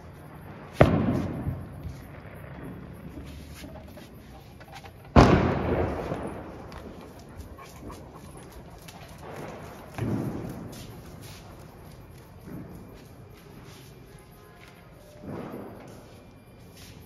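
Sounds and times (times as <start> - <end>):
firecracker bang with echo: 0.6 - 3.2, 5.1 - 7.0, 9.2 - 10.8.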